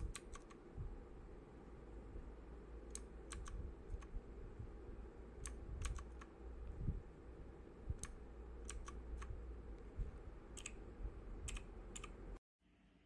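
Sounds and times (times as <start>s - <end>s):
mechanical keyboard keys clicking: 0.0s - 0.6s, 2.9s - 4.1s, 5.4s - 6.3s, 8.0s - 9.3s, 11.5s - 12.2s.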